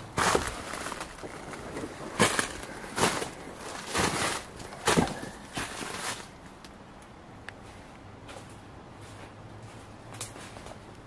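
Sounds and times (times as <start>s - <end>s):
brush rustling: 0.0s - 6.4s
footsteps crunching on trail: 0.1s - 6.4s, 7.6s - 10.8s.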